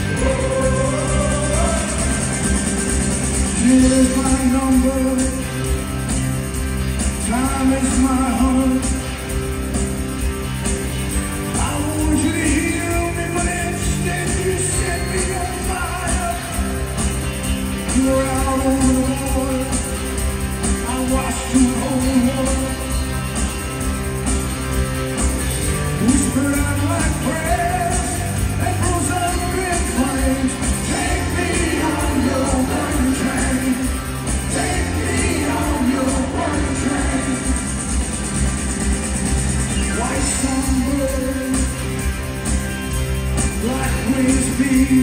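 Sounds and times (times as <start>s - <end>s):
man singing: 0.0s - 2.4s, 3.5s - 5.6s, 7.2s - 9.0s, 11.6s - 16.7s, 17.9s - 20.0s, 20.8s - 23.0s, 26.0s - 37.7s, 39.7s - 41.8s, 43.6s - 45.0s
electric guitars: 0.0s - 45.0s
live rock band playing: 0.0s - 45.0s.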